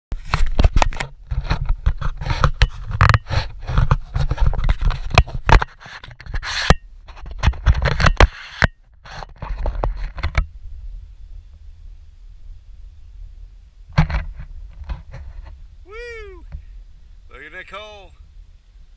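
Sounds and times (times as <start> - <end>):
scraping and tapping on camera: 0.1 - 10.6, 13.9 - 15.7
wind rumble on microphone: 0.1 - 18.9.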